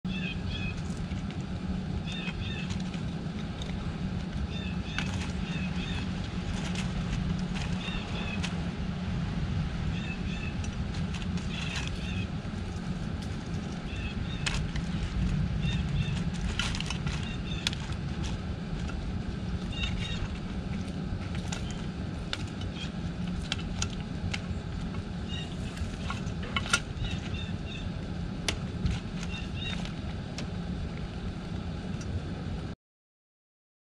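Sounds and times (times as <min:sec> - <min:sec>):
low outdoor rumble: 0:00.0 - 0:32.8
small birds chirping: 0:00.1 - 0:01.0, 0:02.0 - 0:03.1, 0:03.7 - 0:08.6, 0:09.9 - 0:12.8, 0:13.5 - 0:28.0, 0:28.9 - 0:30.1
squirrel cracking peanut shells: 0:00.2 - 0:08.7, 0:09.9 - 0:30.5.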